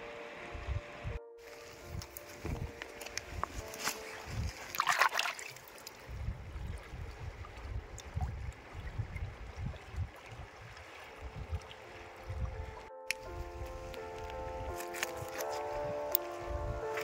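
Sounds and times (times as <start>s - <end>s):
river water trickling: 0.0s - 17.0s
loud water splash: 4.6s - 5.8s.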